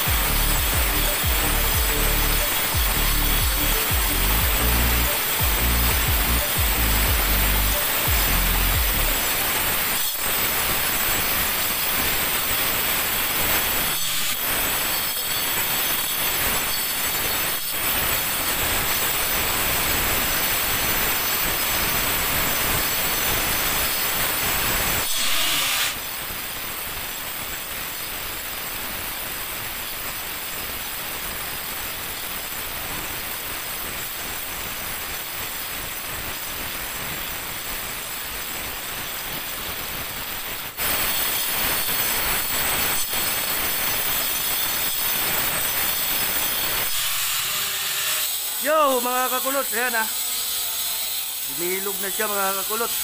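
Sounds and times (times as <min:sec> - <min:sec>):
angle grinder grinding stone: 0:00.0 - 0:27.2, 0:40.5 - 0:53.0.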